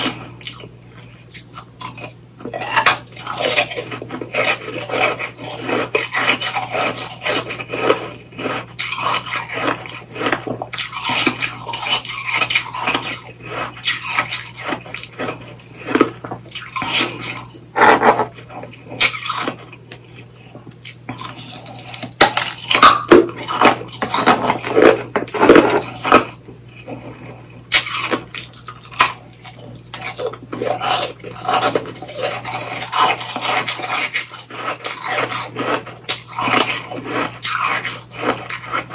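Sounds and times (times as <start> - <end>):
ice crunching being chewed: 0.0 - 38.9.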